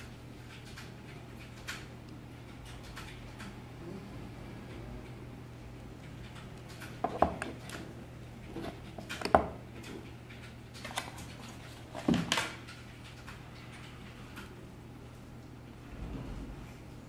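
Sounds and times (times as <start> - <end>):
metal objects knocking on wooden desk: 7.0 - 7.5, 9.2 - 9.6.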